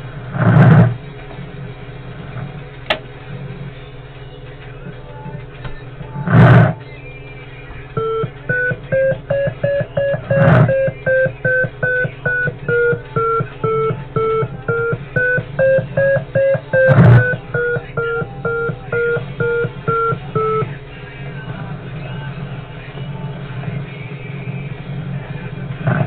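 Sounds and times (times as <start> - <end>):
loud crackles: 6.2 - 6.8
short electronic beeps: 8.0 - 20.8.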